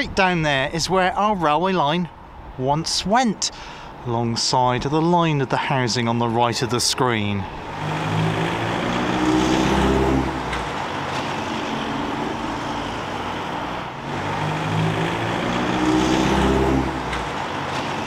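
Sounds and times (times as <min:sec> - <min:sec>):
steady tyre noise: 0:07.2 - 0:18.0
loud vehicles driving past: 0:07.4 - 0:18.0.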